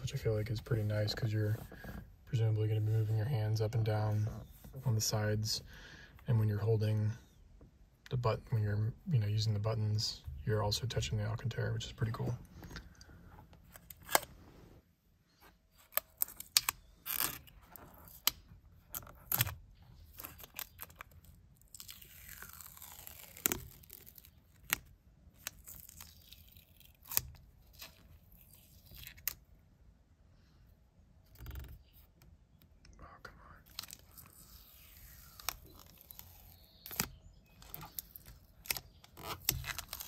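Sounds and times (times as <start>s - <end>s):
plastic film crackling and tearing: 19.0s - 29.4s, 33.6s - 40.0s.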